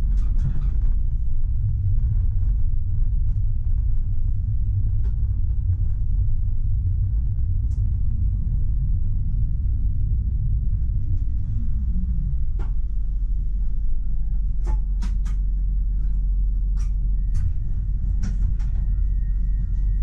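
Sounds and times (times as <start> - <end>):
tram rumble and whine: 0.0 - 20.0
sharp clicks and knocks: 14.6 - 15.4.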